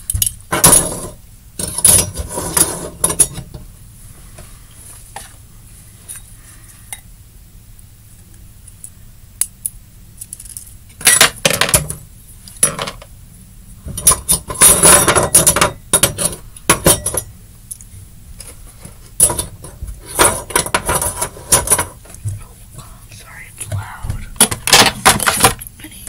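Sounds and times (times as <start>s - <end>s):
plastic items clattering together: 24.4s - 25.6s.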